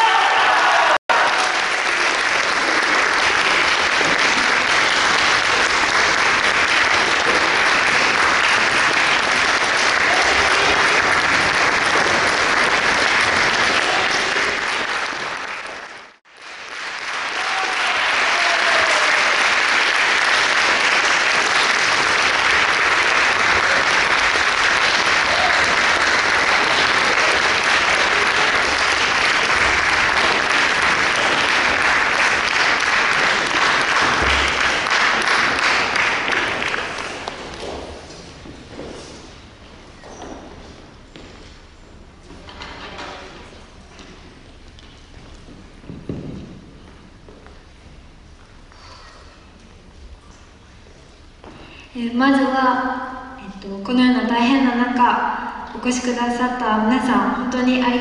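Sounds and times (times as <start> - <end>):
audience applauding: 0.0 - 38.1.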